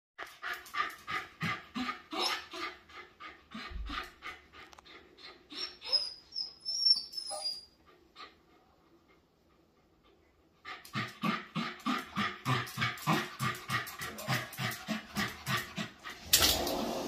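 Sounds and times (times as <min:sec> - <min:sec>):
dog panting: 0:00.2 - 0:06.7, 0:07.3 - 0:16.4
dog whining: 0:01.8 - 0:02.8, 0:05.2 - 0:07.8.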